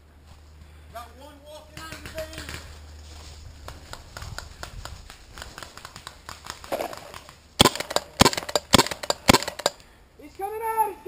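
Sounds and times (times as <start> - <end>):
paintball marker firing: 5.7 - 9.8.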